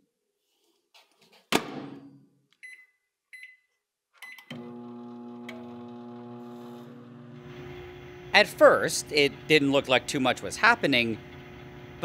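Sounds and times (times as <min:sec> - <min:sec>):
keypad beeps: 0:02.6 - 0:03.6, 0:04.2 - 0:04.5
microwave oven humming: 0:04.5 - 0:12.0.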